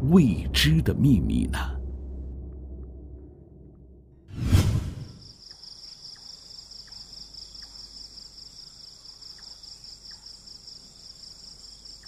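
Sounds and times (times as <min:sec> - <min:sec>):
crickets trilling: 0:05.1 - 0:12.0.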